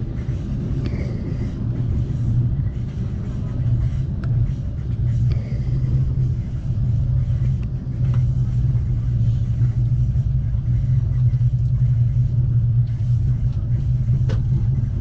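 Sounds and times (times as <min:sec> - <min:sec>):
train rumbling on track: 0:00.0 - 0:15.0.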